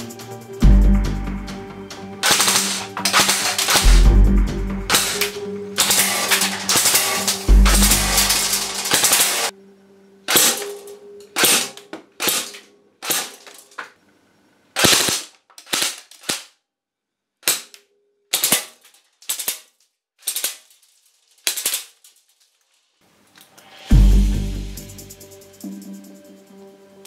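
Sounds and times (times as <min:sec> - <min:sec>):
air gun shots: 0:02.2 - 0:04.2, 0:04.9 - 0:09.5, 0:10.3 - 0:10.7, 0:11.4 - 0:13.5, 0:14.8 - 0:16.5
metal targets knocked over: 0:02.2 - 0:04.3, 0:04.9 - 0:09.5, 0:10.3 - 0:13.9
metallic ring of hits: 0:02.2 - 0:09.5.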